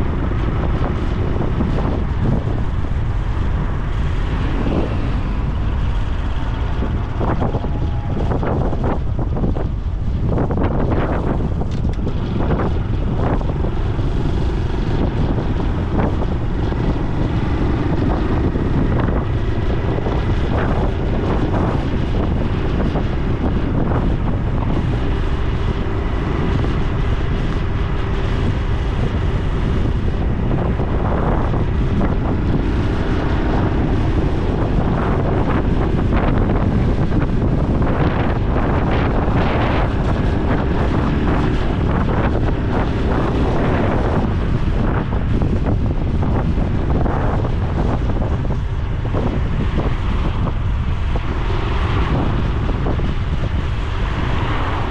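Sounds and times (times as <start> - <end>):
motorcycle engine running: 0.0 - 54.0
wind rumble on microphone: 0.0 - 54.9.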